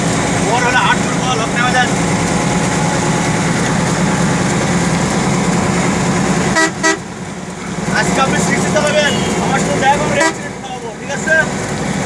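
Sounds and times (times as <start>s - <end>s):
bus engine drone: 0.0s - 12.0s
vehicle horn toots: 6.5s - 7.1s, 8.8s - 10.6s.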